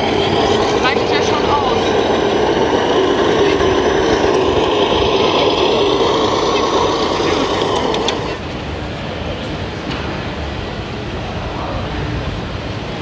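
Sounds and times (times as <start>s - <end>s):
toy truck engine running: 0.0s - 8.5s
crowd chatter: 0.0s - 13.0s.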